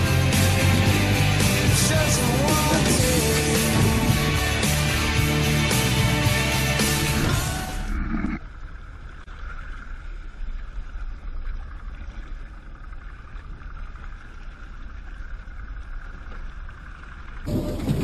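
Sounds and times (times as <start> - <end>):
outboard motor running: 0.0 - 7.9
rock music: 0.0 - 7.9
wind and water rumble: 0.0 - 18.0.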